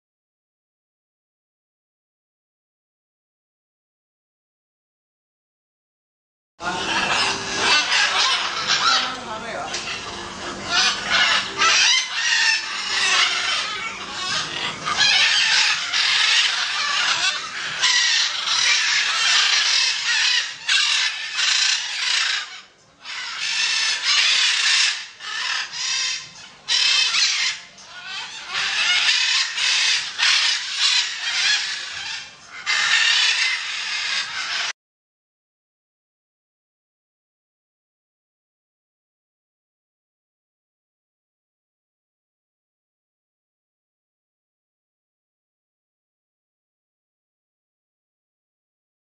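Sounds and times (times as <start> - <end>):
macaws squawking: 6.6 - 34.7.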